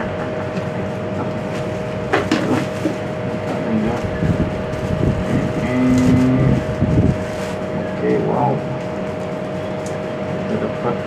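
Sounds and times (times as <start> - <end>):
low steady drone: 0.0 - 11.0
steady machine hum: 0.0 - 11.0
plastic packaging crinkling: 4.7 - 7.8.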